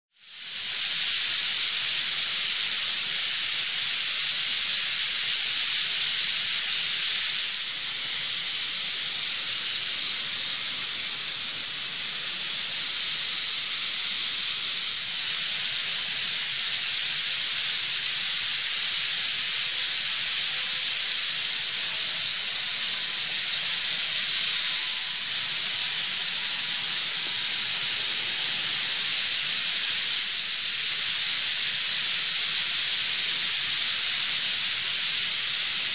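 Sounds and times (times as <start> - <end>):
flock of birds calling overhead: 0.4 - 35.9.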